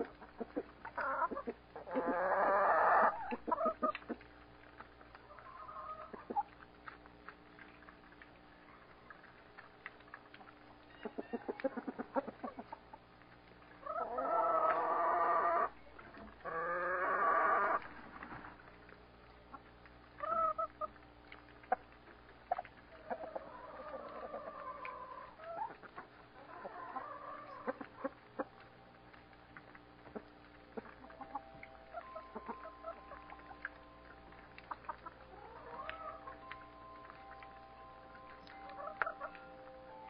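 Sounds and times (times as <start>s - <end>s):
chicken drawn-out calls: 0.0s - 4.3s, 5.2s - 6.5s, 10.5s - 13.0s, 13.8s - 18.0s, 20.2s - 21.0s, 22.4s - 28.6s, 30.0s - 37.0s, 38.3s - 40.0s
chickens clucking: 0.0s - 40.0s.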